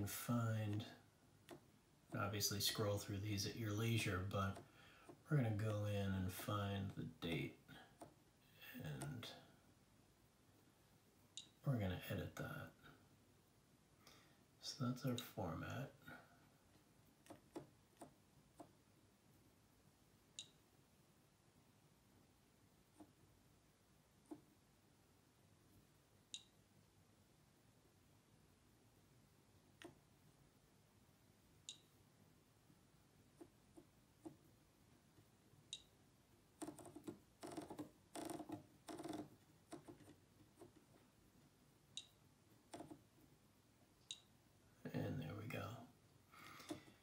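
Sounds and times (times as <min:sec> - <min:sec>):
high-pitched control panel tick: 0:20.4 - 0:20.6, 0:26.3 - 0:26.6, 0:31.7 - 0:31.9, 0:35.7 - 0:35.9, 0:42.0 - 0:42.2.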